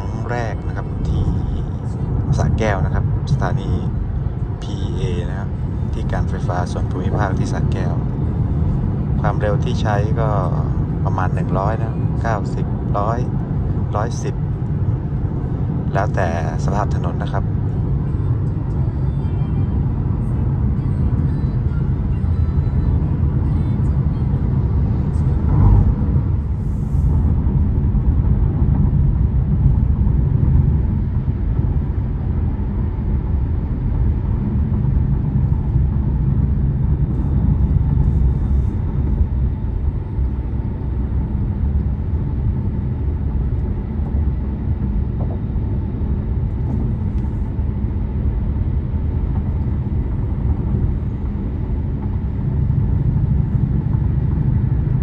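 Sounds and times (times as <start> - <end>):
road and tyre rumble: 0.0 - 55.0
truck passing: 19.5 - 32.8
wind noise: 19.8 - 55.0.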